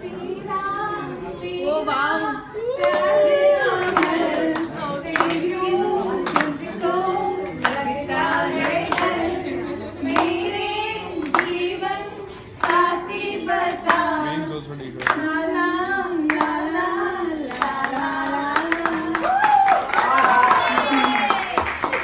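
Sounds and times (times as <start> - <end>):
voices singing: 0.0 - 19.3
hands clapping in time: 3.8 - 5.5, 6.2 - 6.6, 15.0 - 15.3.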